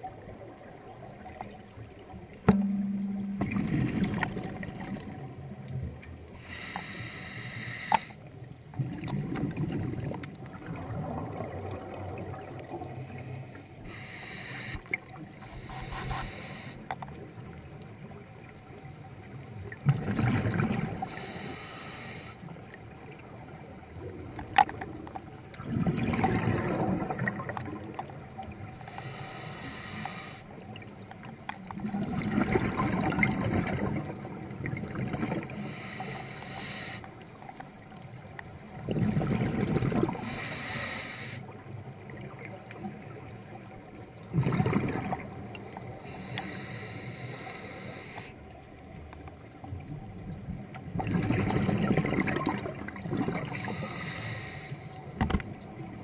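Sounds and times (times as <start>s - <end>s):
exhaled bubbles rumbling: 2.4s - 6.2s, 8.7s - 13.2s, 19.8s - 21.2s, 23.4s - 28.7s, 31.8s - 35.7s, 38.6s - 40.3s, 44.2s - 45.8s, 49.7s - 53.7s
regulator inhale hiss: 6.4s - 8.3s, 13.3s - 17.0s, 21.0s - 22.5s, 28.8s - 30.6s, 35.5s - 37.7s, 40.2s - 41.6s, 45.9s - 48.4s, 53.4s - 55.2s.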